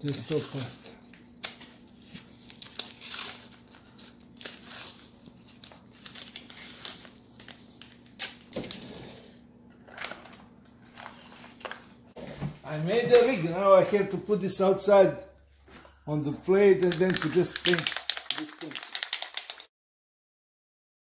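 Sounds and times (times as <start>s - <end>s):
tape crinkling and ripping: 1.4s - 8.9s, 16.6s - 19.6s.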